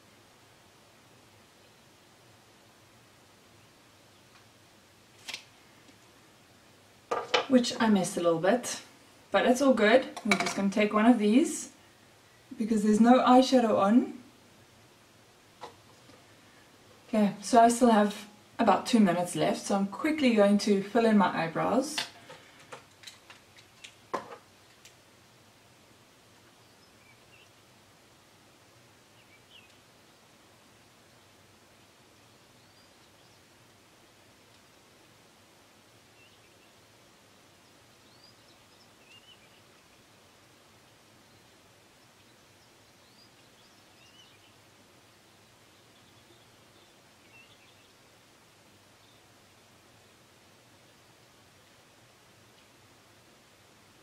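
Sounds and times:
faint room tone hiss: 0:00.0 - 0:54.0
faint bird chirps: 0:26.5 - 0:27.7, 0:29.1 - 0:30.3, 0:32.2 - 0:33.5, 0:36.1 - 0:36.8, 0:37.6 - 0:40.2, 0:41.2 - 0:48.0.

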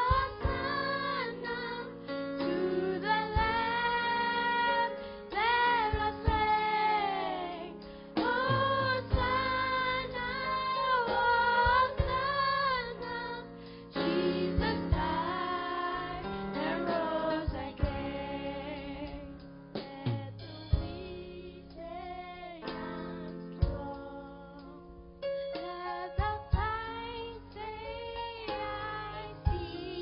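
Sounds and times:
drum hits: 0:00.0 - 0:01.8, 0:02.4 - 0:04.5, 0:05.3 - 0:06.8, 0:07.8 - 0:13.1, 0:14.0 - 0:22.0, 0:22.7 - 0:24.0, 0:26.2 - 0:27.1, 0:29.5 - 0:30.0
girls singing gospel song: 0:00.0 - 0:24.0, 0:25.6 - 0:30.0.

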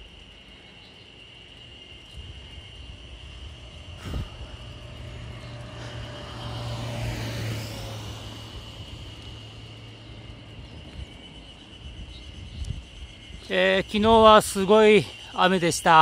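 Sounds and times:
small truck driving past: 0:01.8 - 0:12.2.

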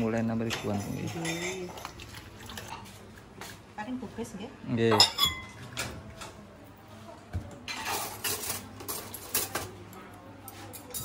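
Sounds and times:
bowls and utensils clinking: 0:00.0 - 0:02.9, 0:04.9 - 0:06.2, 0:07.6 - 0:09.8, 0:10.5 - 0:11.0.

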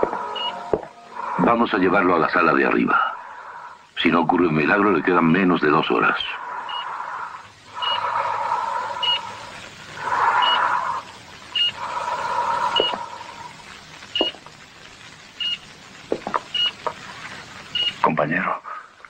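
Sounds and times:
heart monitor beeping: 0:00.0 - 0:01.2, 0:06.7 - 0:06.9, 0:07.8 - 0:08.2, 0:09.0 - 0:09.3, 0:10.4 - 0:10.7, 0:11.4 - 0:11.9, 0:12.5 - 0:13.3, 0:14.0 - 0:14.5, 0:15.4 - 0:15.7, 0:16.4 - 0:16.9, 0:17.7 - 0:18.0
loud hissing: 0:00.0 - 0:19.0.

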